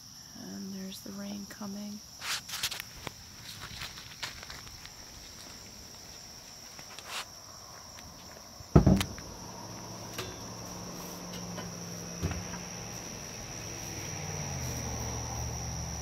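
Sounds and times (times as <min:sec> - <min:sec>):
crickets chirring: 0:00.0 - 0:16.0
loud thump: 0:08.7 - 0:09.4, 0:12.2 - 0:12.6.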